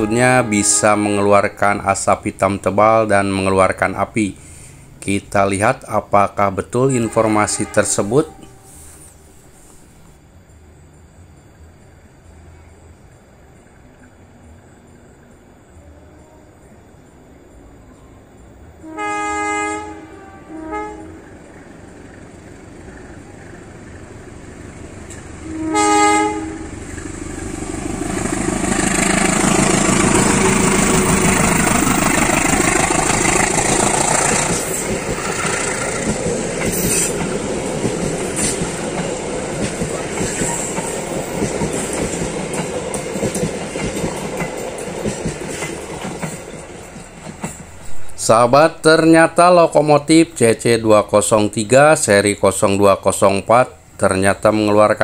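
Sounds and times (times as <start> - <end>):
locomotive horn blasts: 0.0 - 1.5, 6.9 - 8.9, 18.8 - 21.4, 25.4 - 26.8
locomotive engine passing: 17.1 - 55.0
train wheels clicking on rail joints: 26.8 - 48.3.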